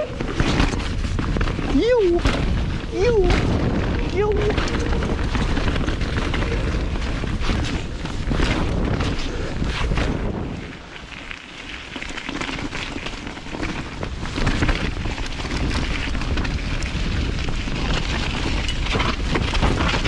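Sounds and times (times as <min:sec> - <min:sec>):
bike knocks and rattles: 0:00.0 - 0:20.0
bike tyres crackling on dirt: 0:00.0 - 0:20.0.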